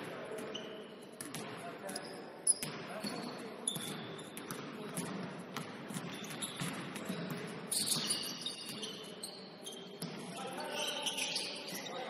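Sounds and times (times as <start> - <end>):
sneakers squeaking on hardwood: 1.9 - 4.6, 6.0 - 12.0.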